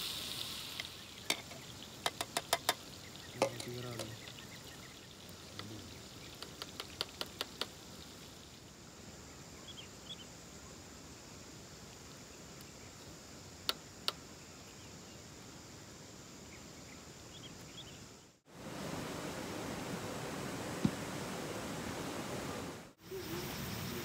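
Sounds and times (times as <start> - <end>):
faint bird chirps: 0.7 - 7.0, 23.0 - 24.0.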